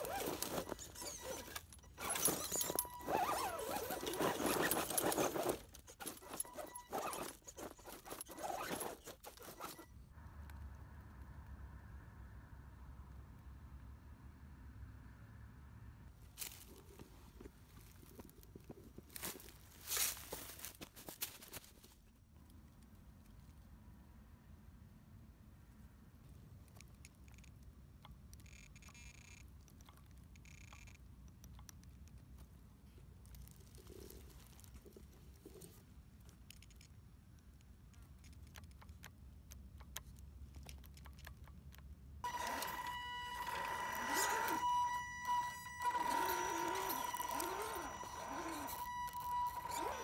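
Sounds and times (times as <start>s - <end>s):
tyres scrabbling over rocks: 0.0s - 9.8s
small clicks: 26.6s - 50.0s
electric motor whining: 42.2s - 50.0s
high-pitched buzzes: 42.2s - 50.0s.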